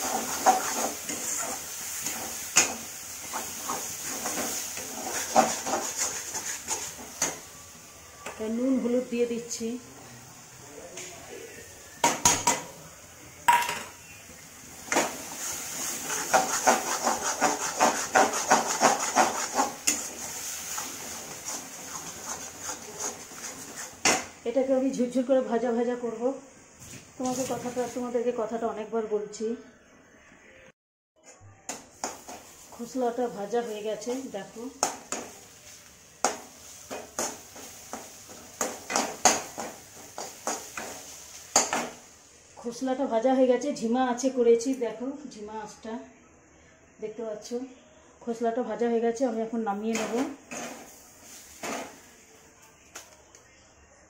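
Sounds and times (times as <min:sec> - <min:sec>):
metal spatula scraping pan: 0:00.0 - 0:07.4, 0:14.9 - 0:24.2, 0:49.9 - 0:51.0
food sizzling: 0:00.0 - 0:28.6, 0:31.7 - 0:43.9, 0:49.4 - 0:52.5.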